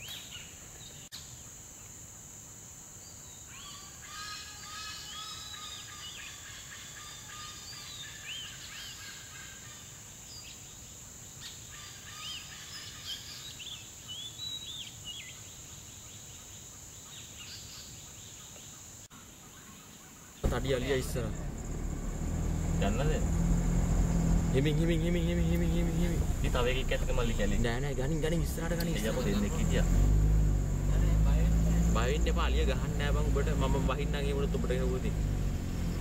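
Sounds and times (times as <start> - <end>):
high-pitched insect drone: 1.2 - 8.0.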